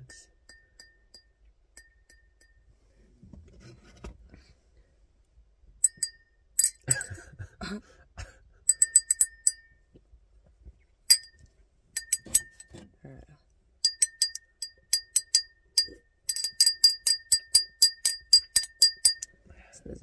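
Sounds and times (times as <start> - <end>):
fork tapping wine glass: 13.8 - 19.3.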